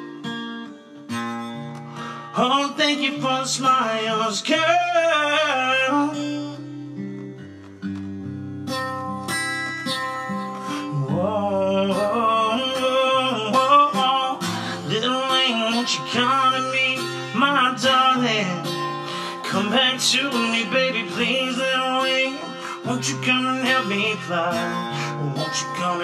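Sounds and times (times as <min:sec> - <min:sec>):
acoustic guitar ballad: 0:00.0 - 0:26.0
man singing: 0:02.3 - 0:07.0, 0:10.7 - 0:26.0.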